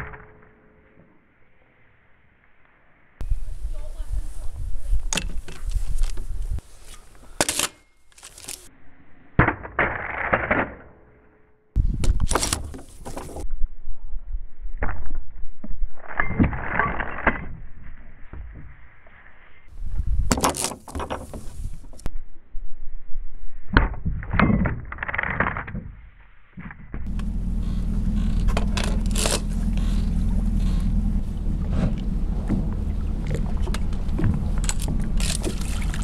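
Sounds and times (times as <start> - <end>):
wind noise: 3.2 - 6.8, 11.8 - 36.0
low drone: 27.1 - 36.0.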